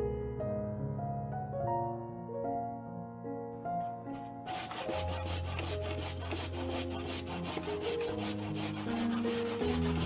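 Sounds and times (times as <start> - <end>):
light piano background music: 0.0 - 10.0
potato rasping on grater: 4.1 - 10.0.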